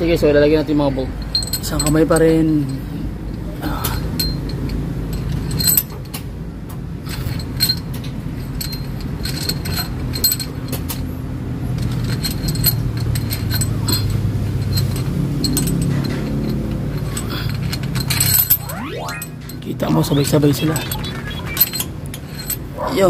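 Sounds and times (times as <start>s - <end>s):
metal parts clinking: 4.0s - 6.2s, 7.1s - 11.1s, 11.7s - 19.5s, 20.3s - 22.7s.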